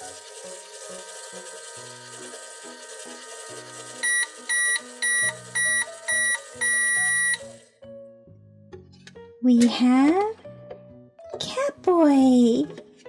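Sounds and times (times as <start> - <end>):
toy microwave beeping: 0.0 - 7.7
background music: 0.0 - 13.0.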